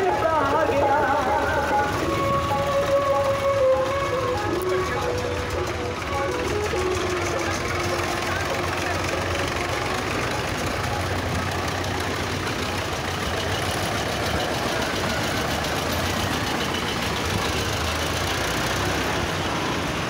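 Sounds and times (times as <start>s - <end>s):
tractors driving past: 0.0s - 20.0s.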